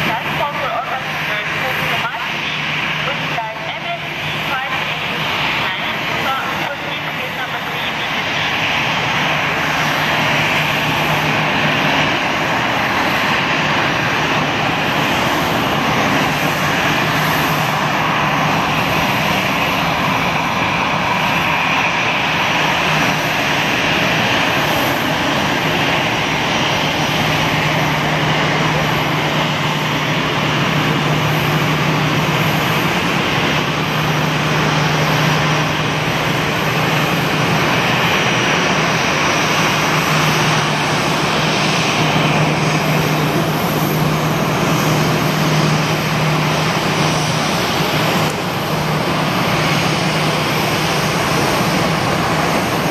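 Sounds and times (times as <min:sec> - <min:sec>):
jet engine whine and rush: 0:00.0 - 0:52.9.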